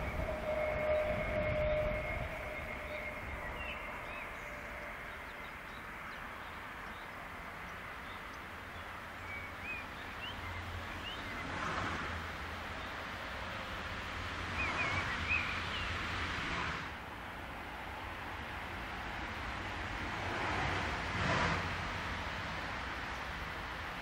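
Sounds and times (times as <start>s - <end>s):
bird chirps: 0.0s - 7.0s
train passing: 0.0s - 24.0s.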